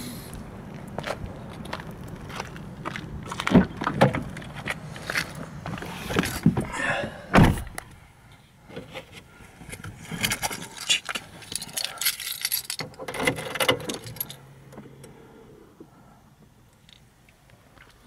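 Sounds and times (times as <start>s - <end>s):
heavy thump: 6.4s - 7.9s
car keys jangling: 10.2s - 14.4s.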